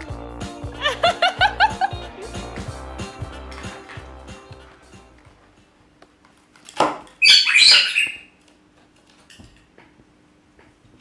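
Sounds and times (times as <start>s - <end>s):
parrot screeching: 7.2s - 8.3s.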